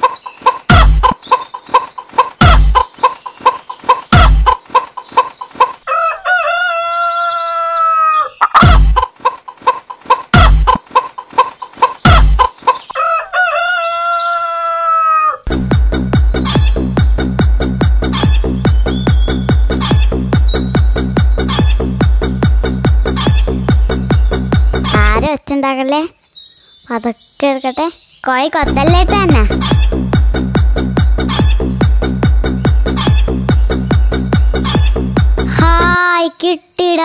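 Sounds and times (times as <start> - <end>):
chicken clucking: 0.0 - 15.4
upbeat music with kick drum: 0.7 - 1.2, 2.4 - 2.8, 4.2 - 4.5, 10.4 - 10.8, 15.5 - 25.3, 28.6 - 36.0
rooster crowing: 5.9 - 8.4, 12.9 - 15.5.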